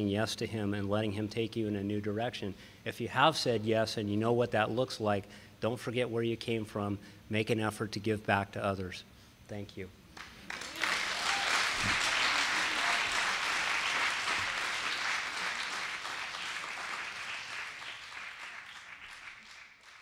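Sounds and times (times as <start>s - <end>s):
audience applauding: 10.2s - 20.0s.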